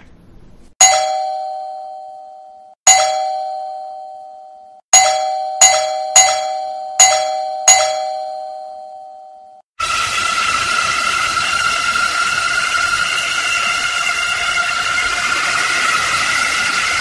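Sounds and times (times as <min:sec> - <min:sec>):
electric doorbell ringing: 0:00.8 - 0:09.6.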